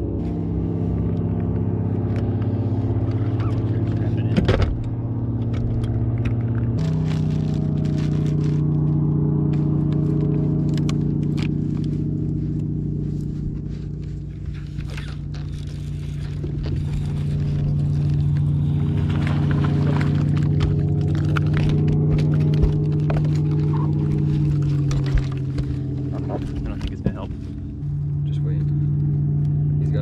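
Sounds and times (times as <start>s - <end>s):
trolling motor humming: 0.0s - 30.0s
rod and reel clicks and scrapes: 14.0s - 18.9s, 20.0s - 26.8s.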